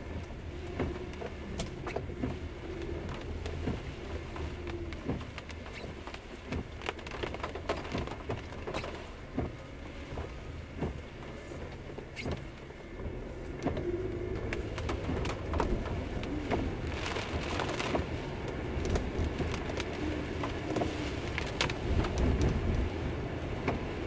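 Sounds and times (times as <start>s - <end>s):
car running hum: 0.0s - 24.0s
raindrops tapping on car: 0.0s - 24.0s.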